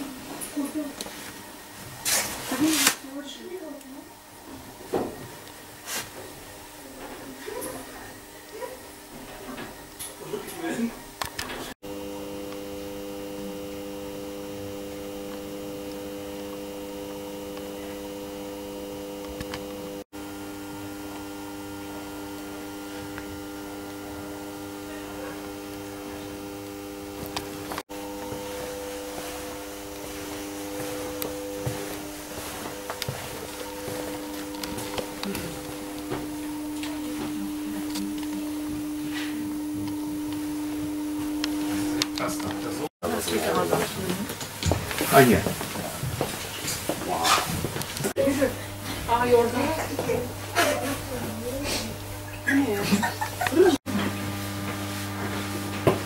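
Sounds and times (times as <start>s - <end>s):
held tones: 11.8s - 42.9s
steady background hum: 16.8s - 53.8s
light footsteps: 28.2s - 39.5s.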